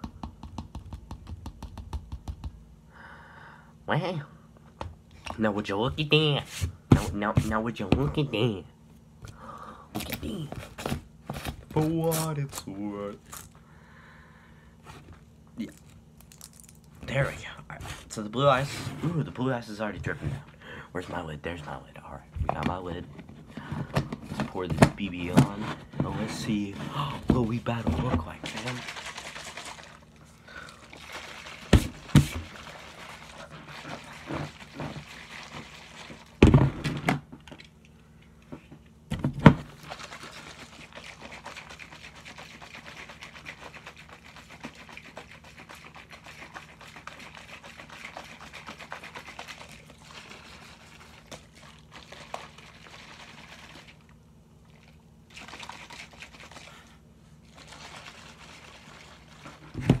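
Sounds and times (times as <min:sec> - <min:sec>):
liquid sloshing in shaker cup: 0:23.9 - 0:36.5, 0:39.6 - 1:00.0.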